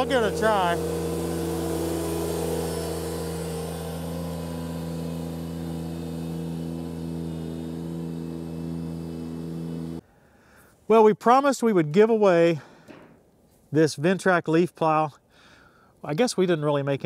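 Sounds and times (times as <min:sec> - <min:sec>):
tractor engine running: 0:00.0 - 0:10.0.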